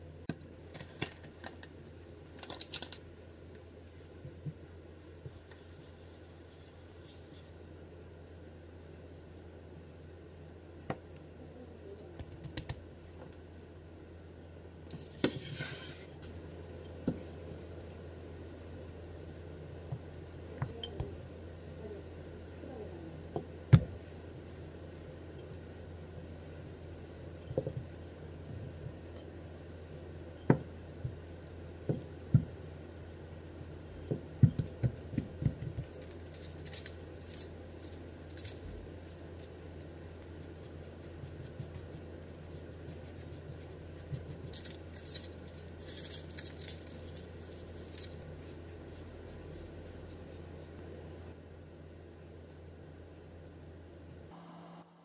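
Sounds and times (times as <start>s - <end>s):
sugar shaken from paper packet: 44.6s - 48.2s.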